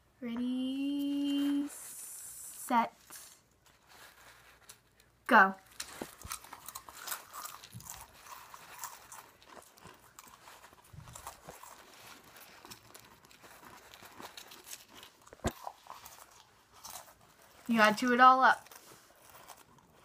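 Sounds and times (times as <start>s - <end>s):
person chewing crunchy crackers: 3.2s - 17.7s, 18.6s - 20.0s.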